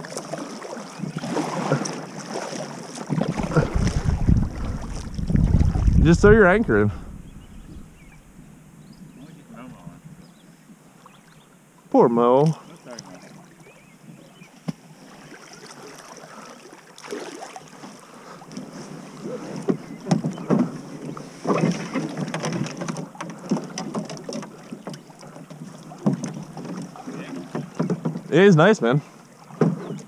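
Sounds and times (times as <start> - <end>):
paddle strokes splashing: 0.0 - 8.3, 12.6 - 30.0
water slapping against hull: 0.0 - 8.3, 14.6 - 28.4, 29.1 - 30.0.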